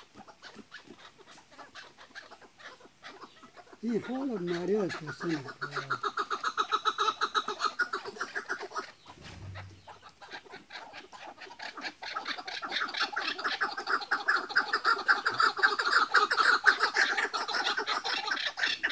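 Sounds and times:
partridges clucking: 0:07.8 - 0:10.8.

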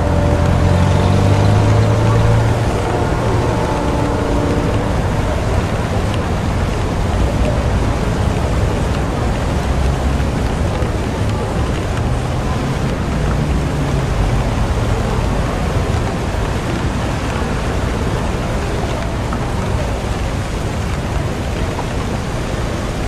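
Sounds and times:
low rumble: 0:00.0 - 0:16.2
heavy rain falling: 0:00.0 - 0:23.0.

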